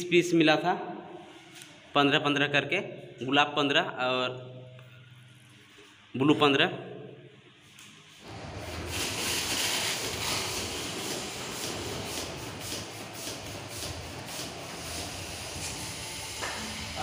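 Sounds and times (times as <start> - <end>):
foil balloon crinkling: 8.4 - 12.0.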